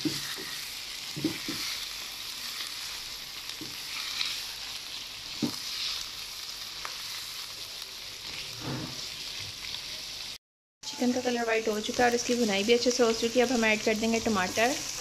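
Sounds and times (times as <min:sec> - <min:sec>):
spatula scraping and knocking pan: 0:00.0 - 0:01.8, 0:08.3 - 0:09.1
chicken sizzling in hot oil: 0:00.0 - 0:15.0.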